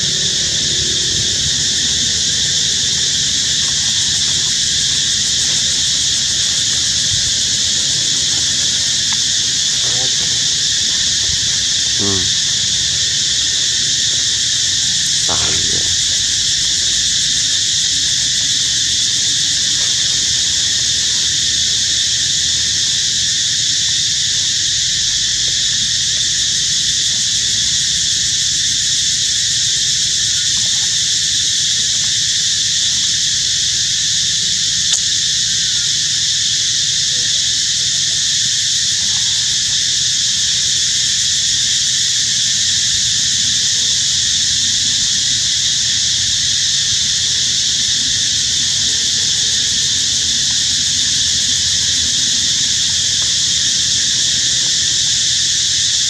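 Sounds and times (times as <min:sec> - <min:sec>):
loud chorus of insects: 0:00.0 - 0:56.0.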